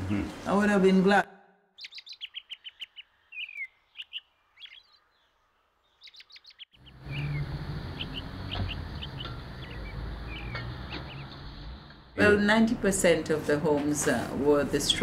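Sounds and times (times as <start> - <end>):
small birds chirping: 1.7 - 12.2.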